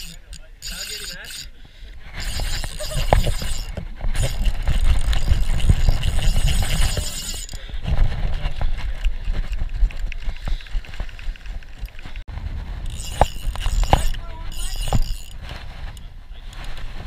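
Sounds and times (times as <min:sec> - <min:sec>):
fishing reel clicking: 0:00.0 - 0:07.7, 0:12.8 - 0:15.4.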